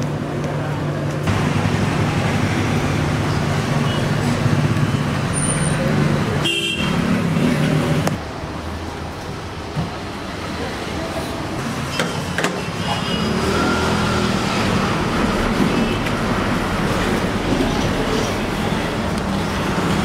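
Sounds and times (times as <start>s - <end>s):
traffic rumble: 0.0s - 20.0s.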